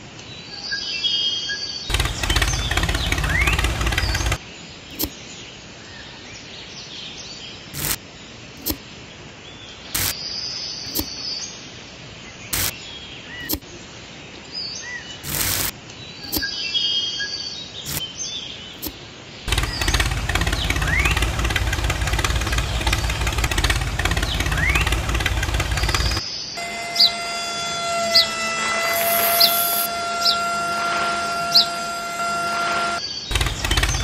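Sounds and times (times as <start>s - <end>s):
model tractor engine running: 1.9s - 4.4s, 7.8s - 8.0s, 15.3s - 15.7s, 19.5s - 34.0s
birds chirping: 1.9s - 5.5s, 17.6s - 34.0s
short sharp clicks: 10.0s - 10.2s, 10.9s - 11.1s.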